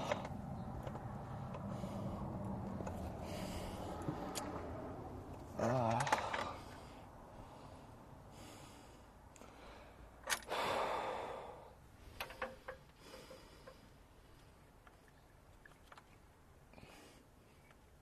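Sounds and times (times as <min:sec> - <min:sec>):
man grunting: 0:05.6 - 0:06.3
man sighing: 0:05.6 - 0:06.7.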